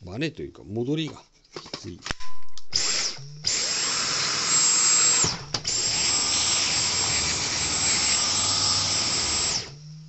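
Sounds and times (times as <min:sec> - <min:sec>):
vacuum cleaner running: 0:02.8 - 0:09.9.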